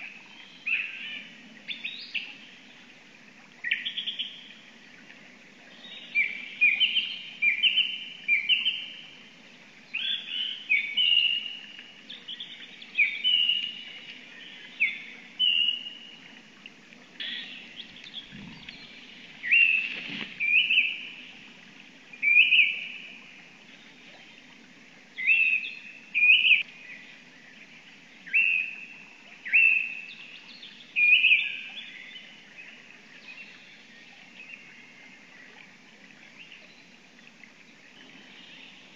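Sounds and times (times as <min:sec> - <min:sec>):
songbird singing: 0:00.0 - 0:02.9, 0:03.6 - 0:09.2, 0:09.8 - 0:16.4, 0:17.0 - 0:24.5, 0:25.2 - 0:35.5
faint low hum: 0:11.6 - 0:25.3.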